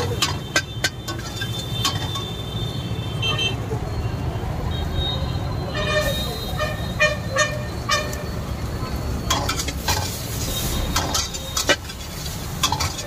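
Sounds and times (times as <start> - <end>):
spatula scraping wok: 0.0 - 2.4, 9.1 - 13.0
sizzling: 0.0 - 2.9, 6.0 - 13.0.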